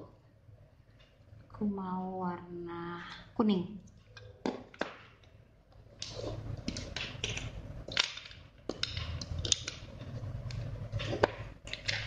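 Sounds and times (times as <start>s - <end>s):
plastic bricks clicking and rattling: 6.7s - 9.9s.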